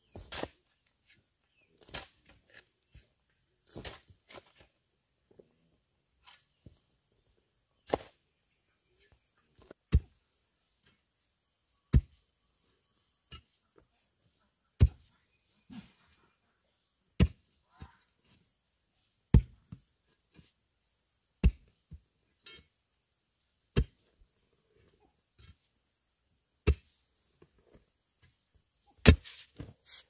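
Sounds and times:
soil and stones falling: 7.8s - 8.2s, 29.0s - 29.7s
digging tool chopping hard earth: 19.3s - 19.6s, 23.7s - 24.0s, 29.0s - 29.4s.

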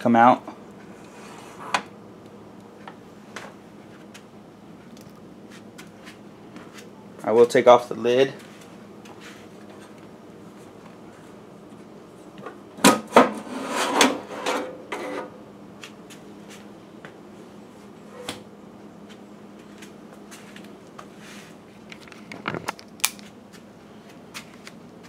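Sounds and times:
metal lid scraping slide: 1.0s - 1.8s, 13.1s - 15.4s.

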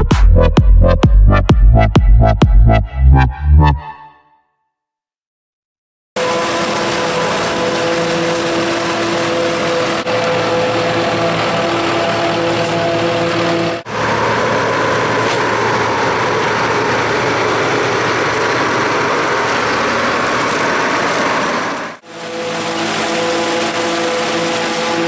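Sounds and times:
farm machinery running: 6.2s - 25.0s.

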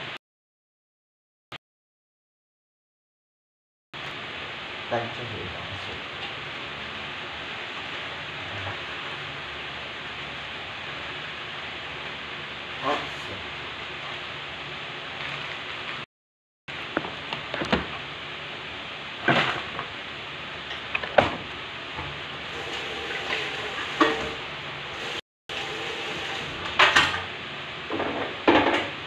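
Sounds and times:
utensils and dishes clattering: 23.1s - 24.4s, 26.7s - 27.3s.

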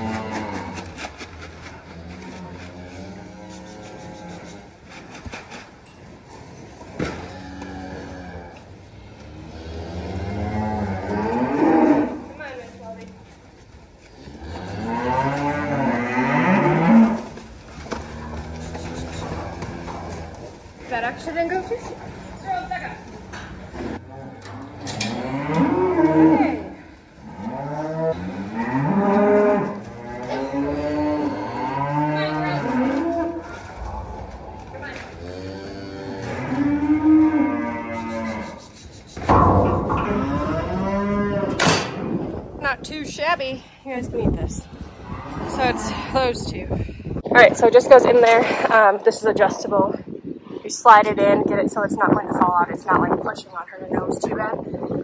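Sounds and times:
cattle mooing: 23.4s - 42.3s, 45.0s - 46.3s.

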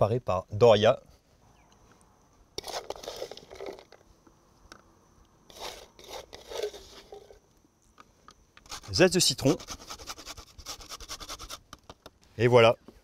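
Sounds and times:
crunchy scraping in wooden bowl: 2.6s - 4.1s, 5.5s - 7.4s, 8.6s - 11.9s.

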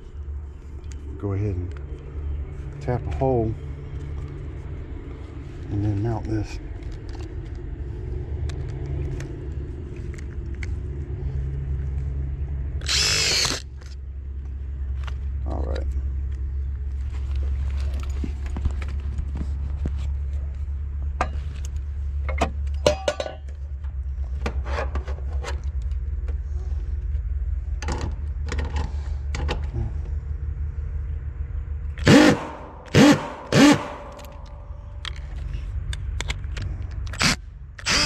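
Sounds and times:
steady low hum: 0.0s - 38.0s
impact driver running: 12.8s - 13.6s, 32.0s - 34.4s, 37.2s - 38.0s.

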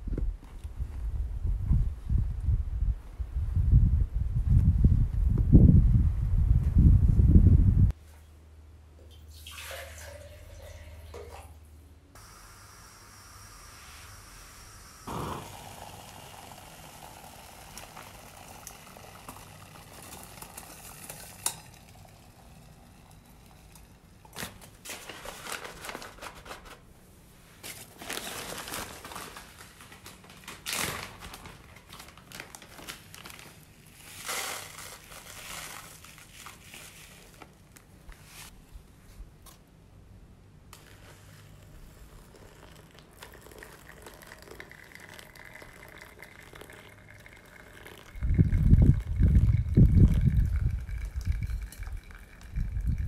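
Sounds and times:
crunching and rustling: 27.6s - 38.6s.

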